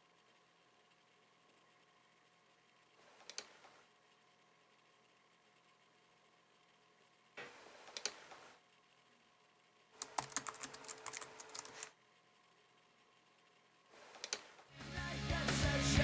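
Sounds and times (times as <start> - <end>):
laptop keyboard typing: 10.0 - 11.9, 14.2 - 14.6.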